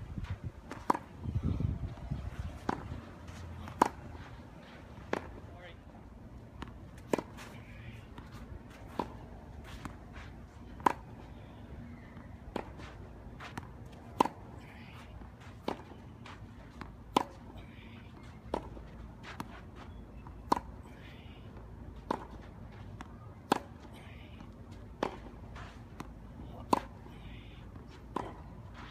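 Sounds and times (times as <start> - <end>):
tennis ball struck by racquet: 2.6 - 2.9, 3.6 - 4.2, 6.6 - 7.6, 23.4 - 23.8, 26.0 - 27.0, 28.1 - 28.9.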